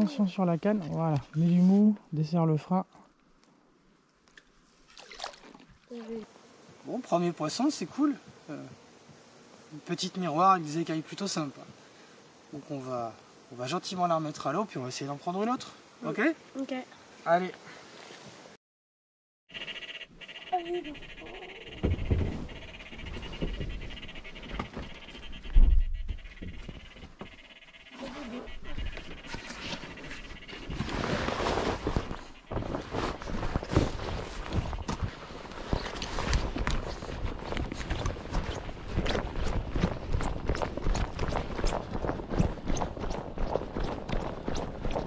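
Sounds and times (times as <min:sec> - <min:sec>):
handling thumps and rustling: 0:21.8 - 0:27.4
footsteps on grassy path: 0:28.6 - 0:45.0.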